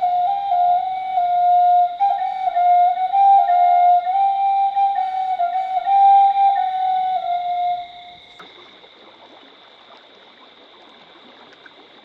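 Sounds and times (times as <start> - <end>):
flute playing slow melody: 0.0 - 8.4.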